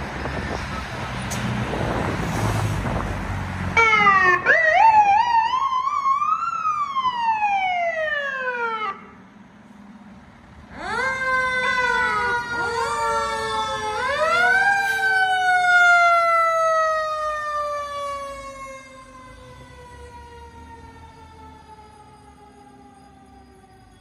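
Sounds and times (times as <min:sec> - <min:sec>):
fire truck siren: 0:03.7 - 0:09.2, 0:10.7 - 0:24.0.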